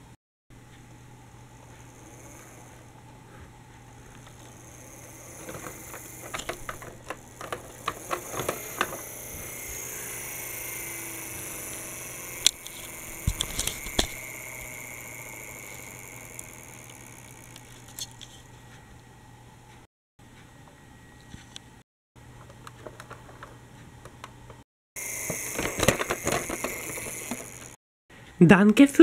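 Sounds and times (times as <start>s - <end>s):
toy bus rattling on plastic track: 4.1s - 18.4s, 25.0s - 27.8s
sharp plastic clicks: 4.2s - 18.3s, 25.2s - 27.8s.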